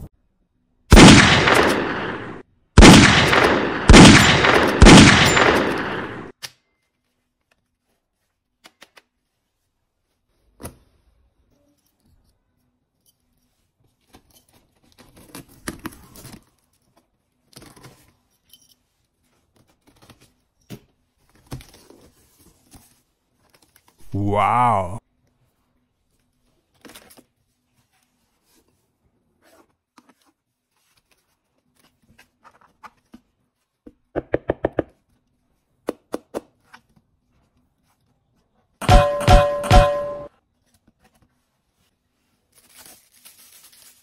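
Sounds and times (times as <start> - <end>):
echoing gunshots: 0.9 - 6.3.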